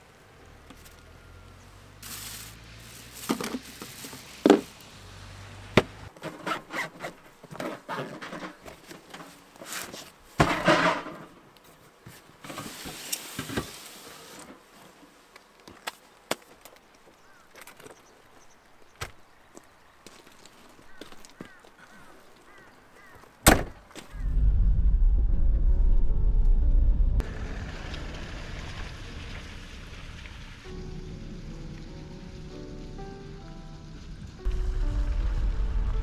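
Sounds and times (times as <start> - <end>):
low hum: 24.1 - 36.0.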